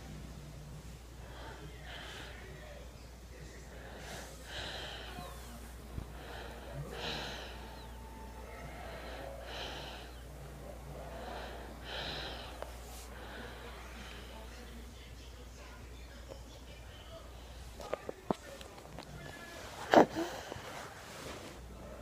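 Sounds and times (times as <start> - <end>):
slow soft breathing: 3.6 - 14.7.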